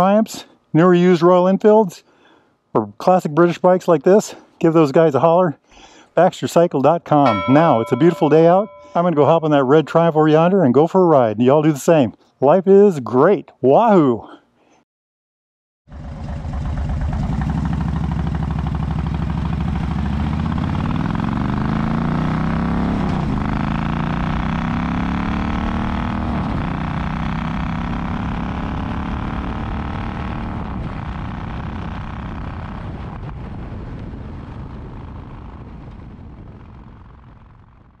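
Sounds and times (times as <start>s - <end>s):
motorcycle engine accelerating: 15.9s - 38.0s.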